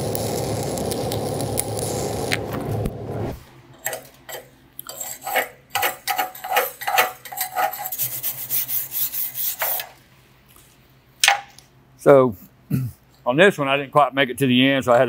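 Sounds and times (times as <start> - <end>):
welding arc crackling: 0.0 - 4.3
wire brush scraping metal: 3.8 - 10.0.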